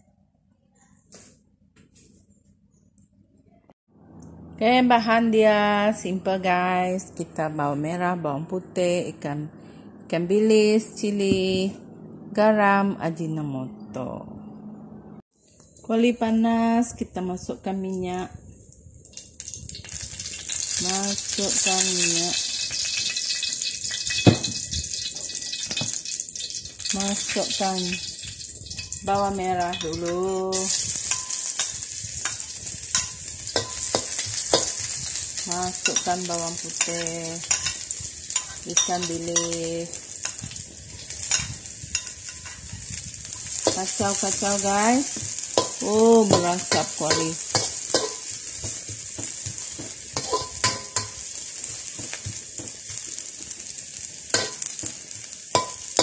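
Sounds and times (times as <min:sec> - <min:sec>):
shallots sizzling in hot oil: 0:19.1 - 0:56.0
metal spatula scraping a wok: 0:19.8 - 0:52.4
utensil knocking against a wok: 0:23.9 - 0:26.0, 0:33.0 - 0:35.0, 0:45.1 - 0:51.3, 0:54.4 - 0:55.0, 0:55.6 - 0:56.0.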